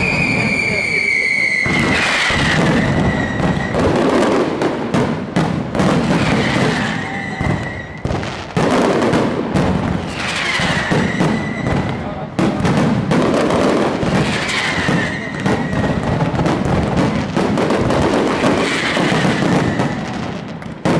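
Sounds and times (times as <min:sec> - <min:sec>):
firework whistle: 0:00.0 - 0:05.1, 0:05.8 - 0:20.9
fireworks bangs and crackling: 0:00.0 - 0:20.9.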